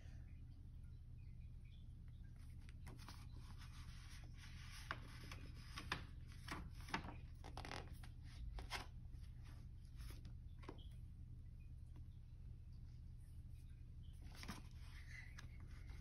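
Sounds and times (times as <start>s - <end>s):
paper pages rustling: 2.6s - 10.8s, 14.2s - 16.0s.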